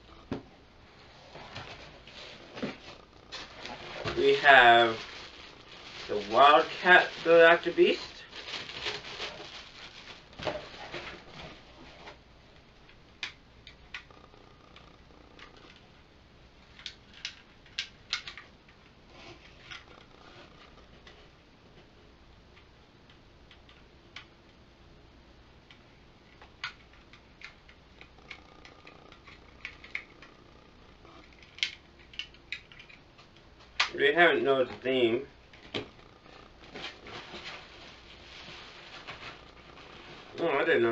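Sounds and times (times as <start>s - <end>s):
plastic bag crinkling: 2.8s - 11.7s, 36.2s - 40.9s.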